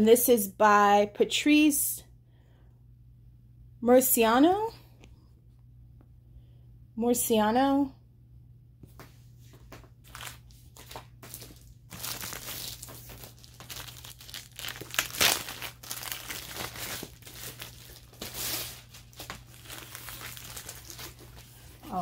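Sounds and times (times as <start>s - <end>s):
packaging crinkling and rustling: 10.0s - 22.0s
sharp crackle: 12.0s - 21.1s.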